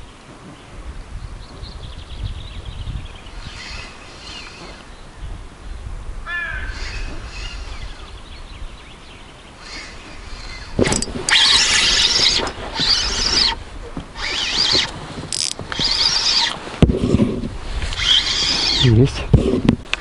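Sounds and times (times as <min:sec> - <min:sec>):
birds chirping: 0:00.0 - 0:16.6
wind rumble on microphone: 0:00.0 - 0:20.0
harsh bird call: 0:06.2 - 0:08.2.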